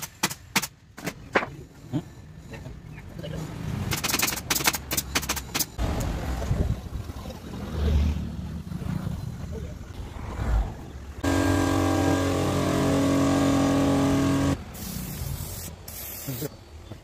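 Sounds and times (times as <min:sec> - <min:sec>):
motor humming: 0:11.2 - 0:14.6.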